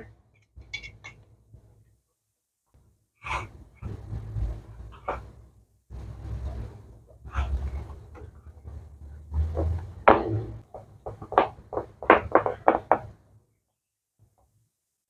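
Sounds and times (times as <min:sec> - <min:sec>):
low handling rumble: 0:03.6 - 0:10.7.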